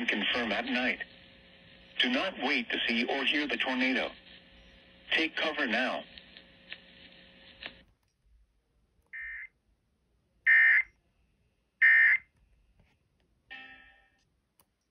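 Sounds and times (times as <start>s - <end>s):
radio hiss: 0.0s - 7.8s
radio crackle: 0.0s - 8.0s.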